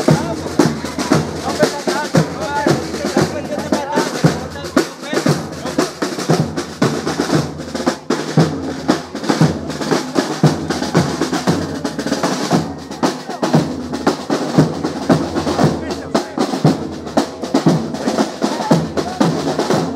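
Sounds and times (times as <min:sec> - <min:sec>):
crowd voices: 0:00.0 - 0:19.9
snare and bass drums playing: 0:00.0 - 0:19.9.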